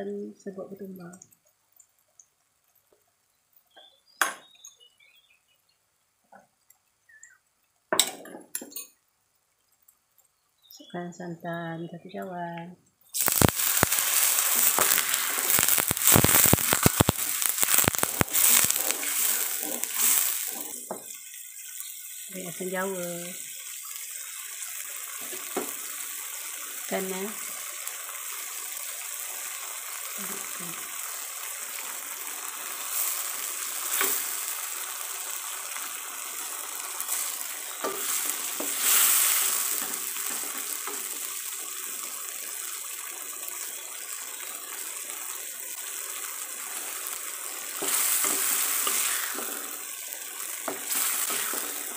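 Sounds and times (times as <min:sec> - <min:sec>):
curry sizzling in a wok: 0:00.0 - 0:05.9, 0:13.1 - 0:51.9
oil spitting and crackling: 0:13.1 - 0:51.9
wooden spatula stirring: 0:16.3 - 0:21.1.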